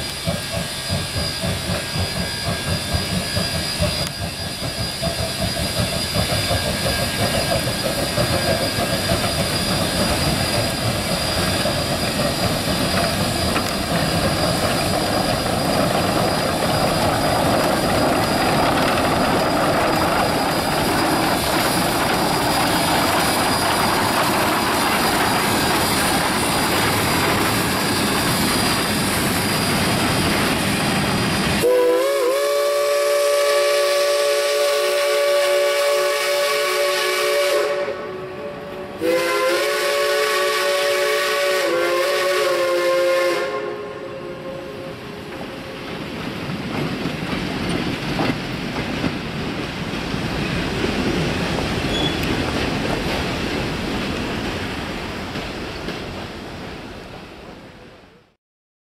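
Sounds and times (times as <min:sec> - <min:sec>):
train rumbling on rails: 0:00.0 - 0:58.4
steam whistle blasts: 0:31.6 - 0:45.2.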